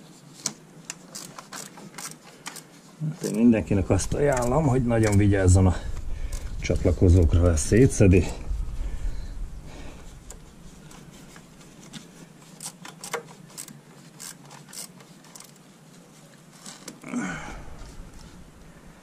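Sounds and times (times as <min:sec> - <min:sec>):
hands clicking plastic connectors: 0:12.6 - 0:15.5.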